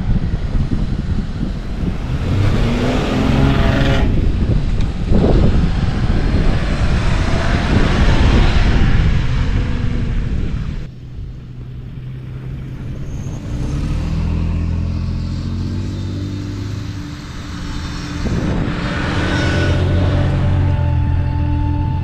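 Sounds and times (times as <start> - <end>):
car engine running: 14.6 - 22.0.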